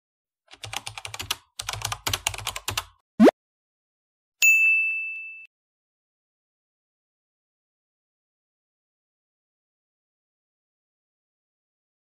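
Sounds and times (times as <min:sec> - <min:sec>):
bell-like ding: 0:04.4 - 0:05.5.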